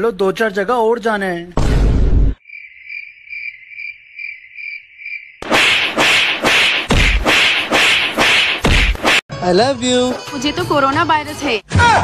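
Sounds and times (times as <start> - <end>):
cricket chirping: 2.4 - 5.4
sharp slap-like smacks: 5.4 - 9.2.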